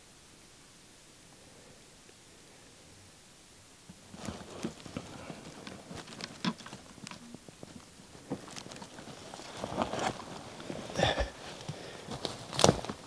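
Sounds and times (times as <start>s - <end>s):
rustling on dry brush: 3.8s - 13.0s.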